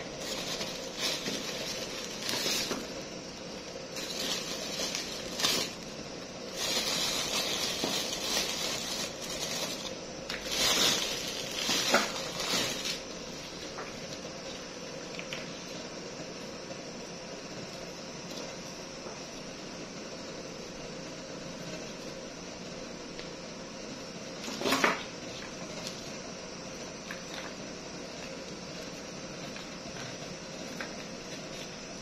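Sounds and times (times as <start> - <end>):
plastic bag crinkling: 0.0 - 14.2.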